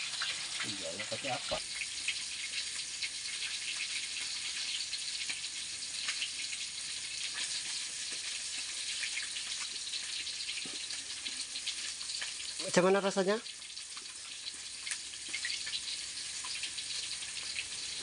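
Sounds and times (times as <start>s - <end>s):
fish frying in hot oil: 0.0s - 18.0s.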